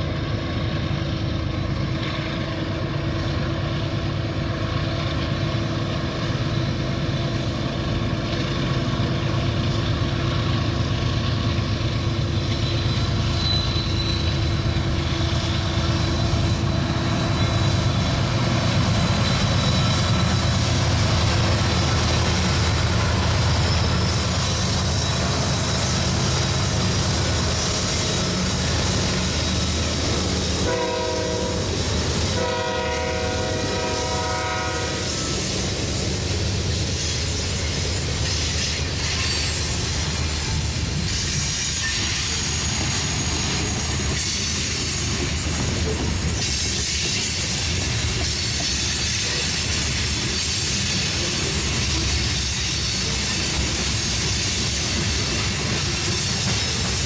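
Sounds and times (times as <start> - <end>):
diesel locomotives rumbling: 0.0 - 57.0
train horn blasts: 30.6 - 35.4
wheels on rails: 35.0 - 57.0.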